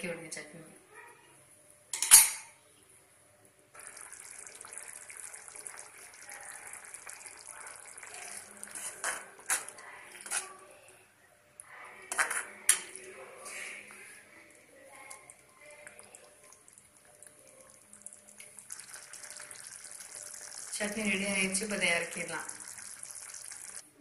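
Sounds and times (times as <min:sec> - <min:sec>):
spoon clinking against pan: 0:02.0 - 0:02.6
chutney bubbling and spluttering: 0:03.7 - 0:10.5, 0:15.0 - 0:23.8.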